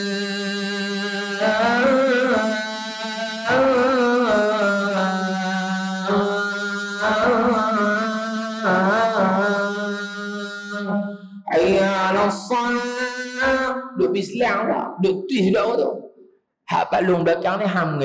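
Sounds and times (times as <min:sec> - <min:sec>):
man chanting call to prayer: 0:00.0 - 0:16.0, 0:16.7 - 0:18.0.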